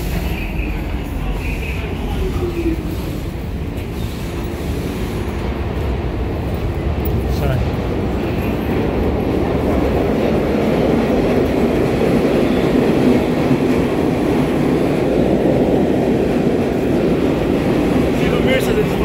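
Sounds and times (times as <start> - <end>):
subway train rumbling: 0.0 - 19.0.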